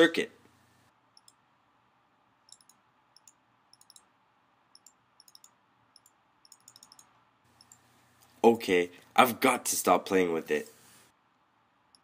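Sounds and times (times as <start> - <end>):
computer mouse clicks: 1.1 - 1.4, 2.5 - 4.1, 4.7 - 7.8.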